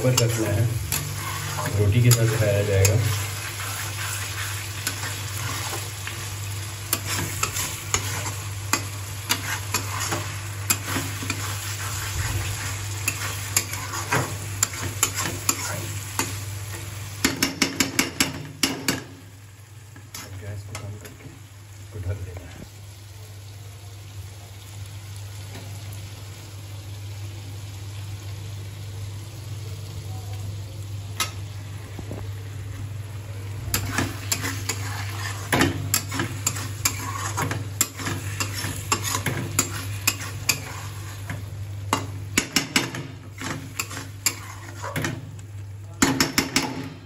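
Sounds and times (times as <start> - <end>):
metal spatula scraping a pan: 0.0 - 16.8, 33.7 - 42.1, 42.8 - 45.2
curry sizzling in a pan: 0.0 - 47.0.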